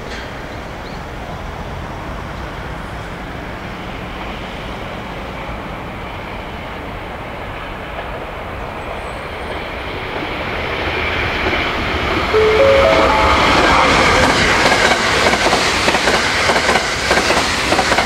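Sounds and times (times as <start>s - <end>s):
electric train approaching: 1.4s - 18.0s
stepped rising tones: 12.4s - 14.8s.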